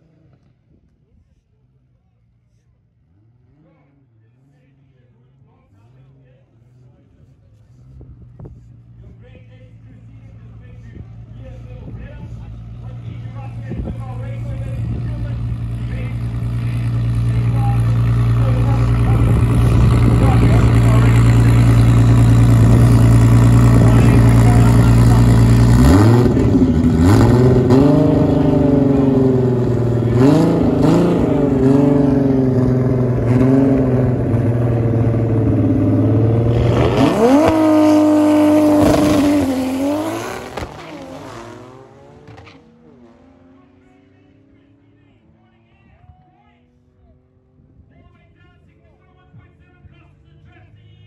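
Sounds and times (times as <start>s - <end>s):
car engine revving: 9.7s - 45.4s.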